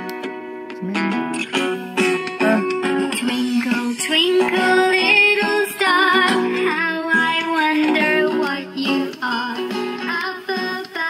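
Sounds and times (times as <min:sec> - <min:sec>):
woman singing children's song: 0:02.2 - 0:11.0.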